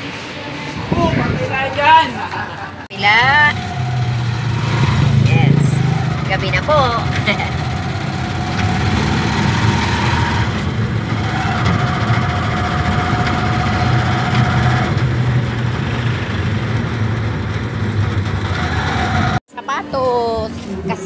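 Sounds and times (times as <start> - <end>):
motorcycle engine droning: 3.1 - 19.4.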